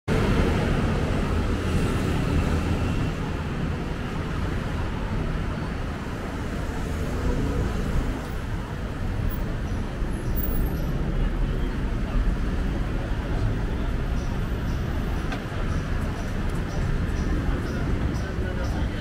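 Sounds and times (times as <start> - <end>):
city traffic rumble: 0.1 - 19.0.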